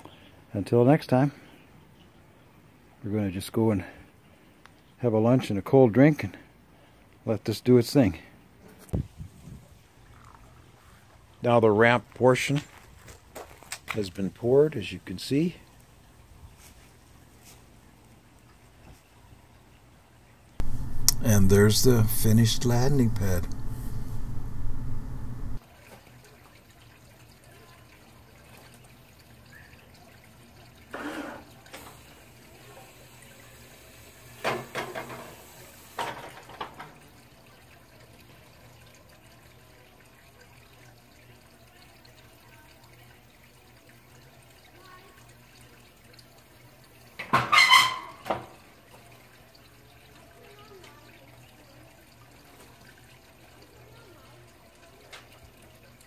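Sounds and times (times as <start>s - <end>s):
platform lift humming: 20.6s - 25.6s.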